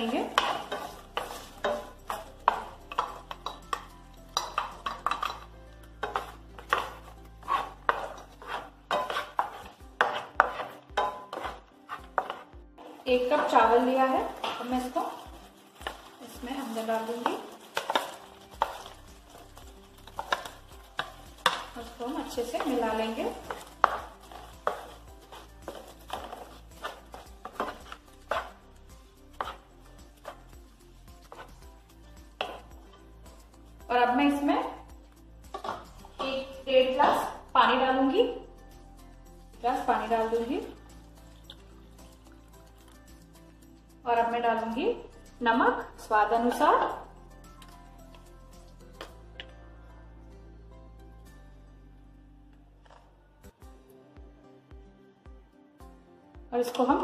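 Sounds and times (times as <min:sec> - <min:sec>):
wooden spatula scraping frying pan: 0:00.0 - 0:34.8, 0:35.5 - 0:37.8
soft background music: 0:00.0 - 0:57.0.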